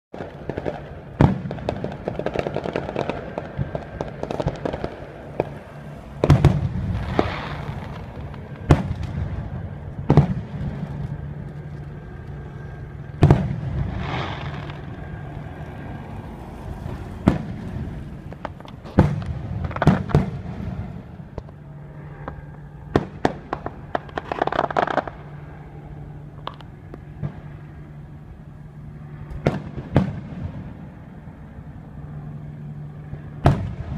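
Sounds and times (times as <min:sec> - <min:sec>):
fireworks crackling hiss: 0:00.2 - 0:11.1, 0:13.2 - 0:21.4, 0:23.0 - 0:25.3
firework shells booming: 0:00.2 - 0:11.3, 0:13.1 - 0:15.3, 0:16.8 - 0:21.6, 0:22.3 - 0:25.4, 0:29.3 - 0:30.9, 0:33.1 - 0:33.9.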